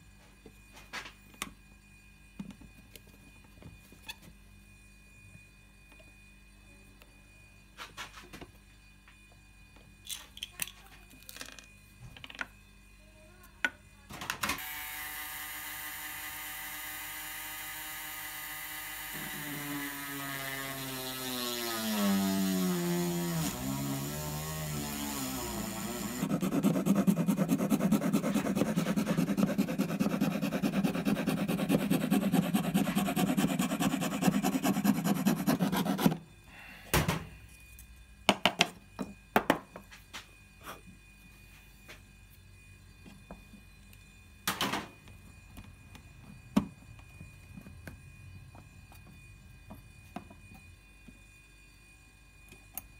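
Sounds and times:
cordless drill boring into wood: 14.6s - 26.3s.

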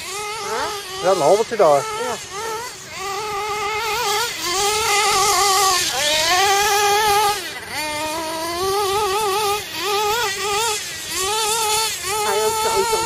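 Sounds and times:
model engine high-pitched whine: 0.0s - 13.0s.

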